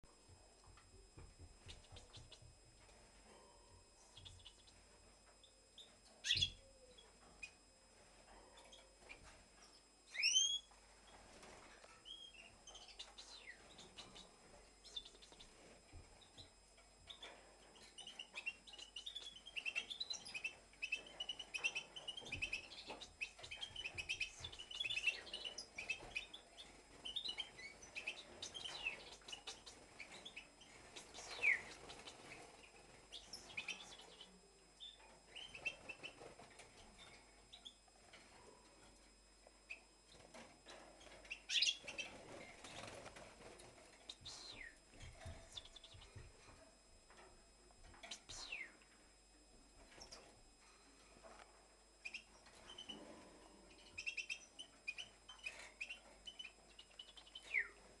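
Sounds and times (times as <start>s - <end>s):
goldfinch twittering: 6.2s - 6.6s, 41.3s - 42.1s.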